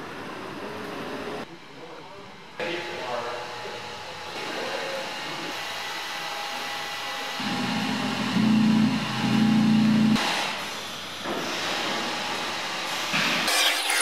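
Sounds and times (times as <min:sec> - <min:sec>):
vacuum blower motors running: 0:02.6 - 0:10.8.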